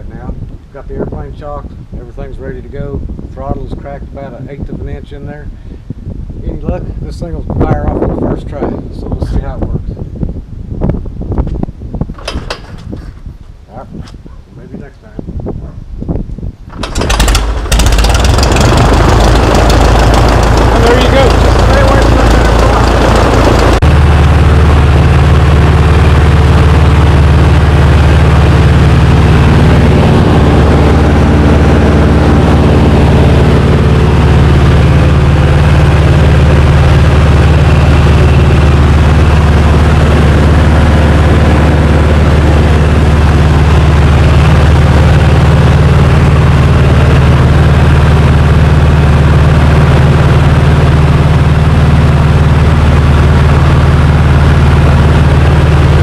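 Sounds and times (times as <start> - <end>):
light airplane engine droning: 16.7 - 56.0.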